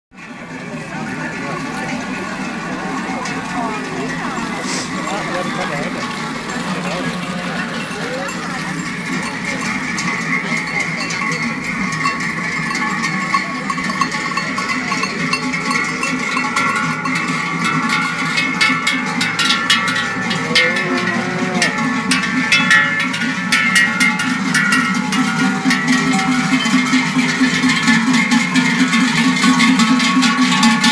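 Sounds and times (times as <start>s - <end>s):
cowbells clanging: 0.2s - 30.9s.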